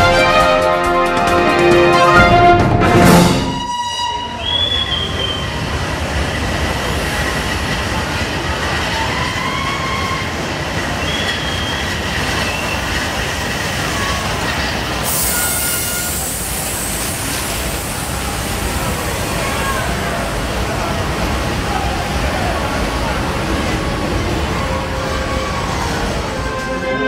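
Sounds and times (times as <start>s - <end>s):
train wheels rumbling on rail: 2.4s - 27.0s
wheel squeals: 8.6s - 16.5s
locomotive steam hiss: 10.9s - 26.5s.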